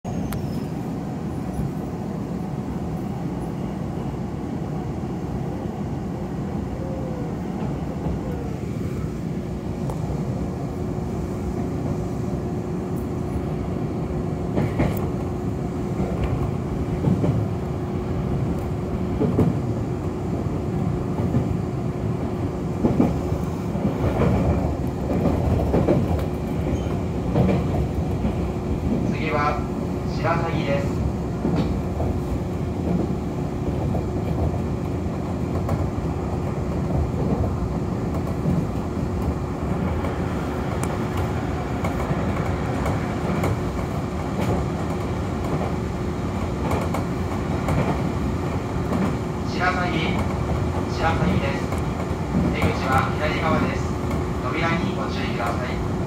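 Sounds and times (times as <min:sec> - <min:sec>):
electric train rumbling on rails: 0:00.0 - 0:56.0
train wheel knocks: 0:14.5 - 0:15.2, 0:16.0 - 0:17.5, 0:19.2 - 0:19.6, 0:22.8 - 0:23.2, 0:23.8 - 0:29.1, 0:31.4 - 0:32.2, 0:46.5 - 0:49.2.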